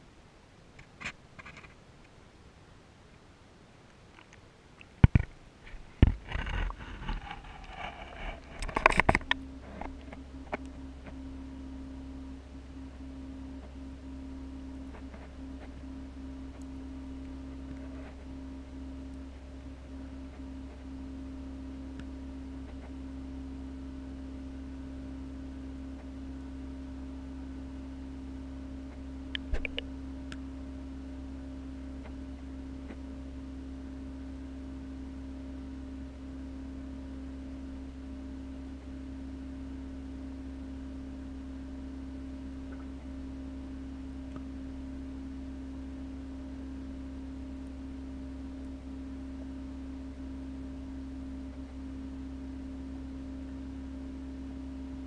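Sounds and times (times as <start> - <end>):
aquarium pump humming: 4.1 - 55.0
clicks: 29.4 - 30.4.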